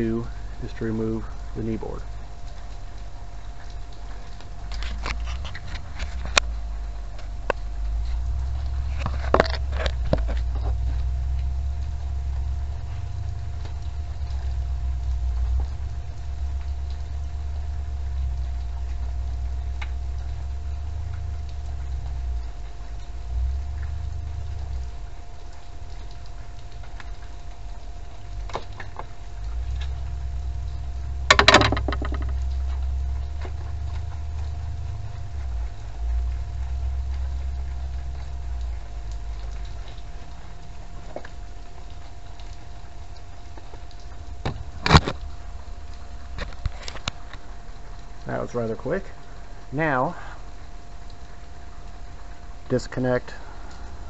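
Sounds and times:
steady low rumble: 0.0s - 54.0s
clicking and rattling: 31.3s - 32.5s
sharp clicks and knocks: 31.3s - 34.0s.

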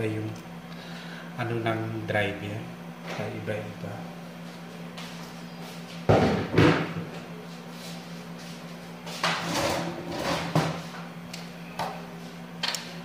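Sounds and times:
sharp knocks in kitchen: 6.1s - 7.1s.

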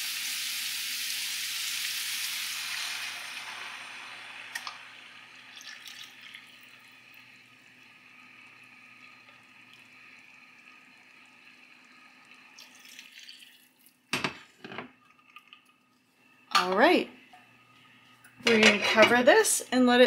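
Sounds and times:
pan of vegetables sizzling: 0.0s - 5.5s
broth trickling into plastic cup: 12.3s - 14.0s.

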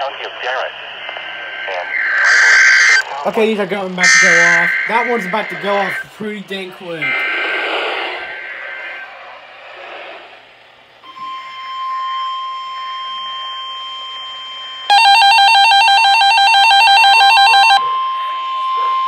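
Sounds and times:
radio static hiss: 0.0s - 11.0s
warbling electronic beeping: 1.5s - 6.1s, 7.0s - 10.0s
steady alert tone: 1.9s - 9.3s.

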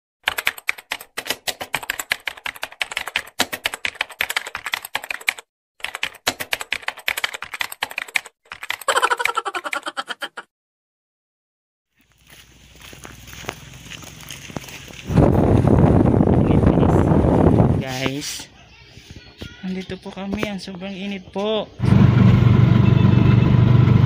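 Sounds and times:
keyboard typing: 0.2s - 10.4s.

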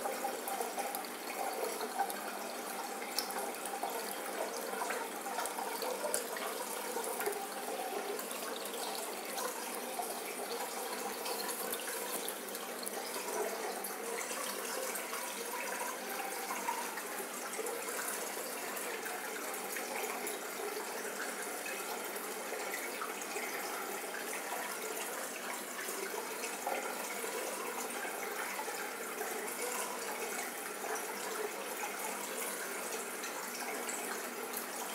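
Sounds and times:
running splashing water: 0.0s - 34.9s.

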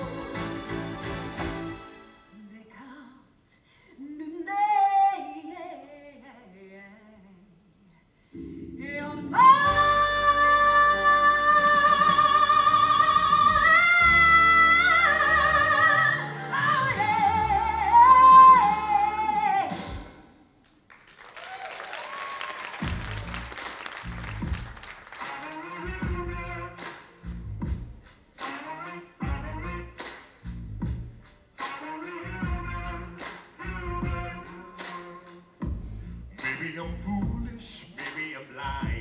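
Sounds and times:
band playing with heavy bass: 0.0s - 1.8s, 22.8s - 37.6s
person singing live: 8.4s - 20.0s
audience applause: 20.9s - 26.0s.

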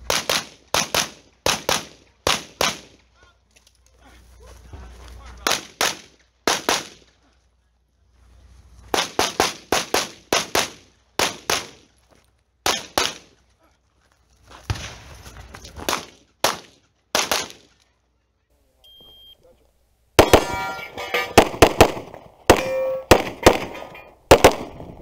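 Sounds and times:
pistol gunshots: 0.0s - 3.0s, 5.4s - 7.0s, 8.9s - 11.8s, 12.6s - 13.3s, 15.8s - 17.7s, 20.2s - 25.0s.

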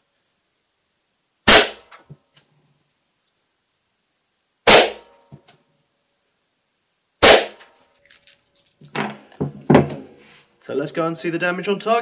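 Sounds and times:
revolver gunshots: 7.2s - 7.6s.

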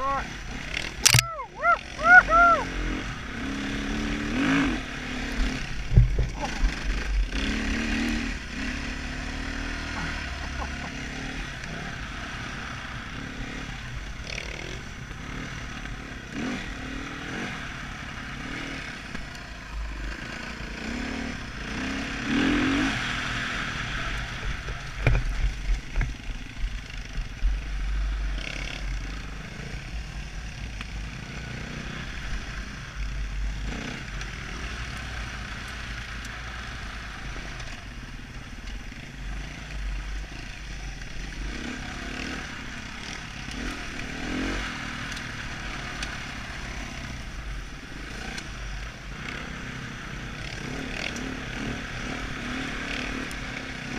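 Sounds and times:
dirt bike engine revving: 0.0s - 24.5s, 38.9s - 53.9s
bike knocks and rattles: 5.9s - 6.8s.

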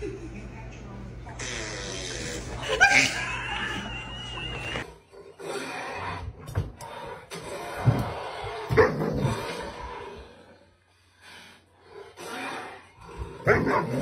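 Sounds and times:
dog barking: 13.4s - 14.0s.

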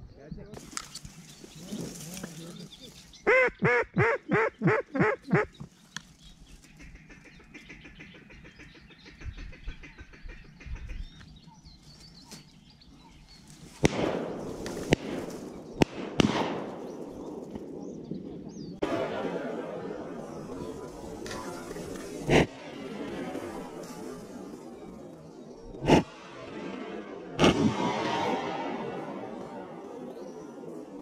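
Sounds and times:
sharp crack and rush of noise: 18.8s - 31.0s.

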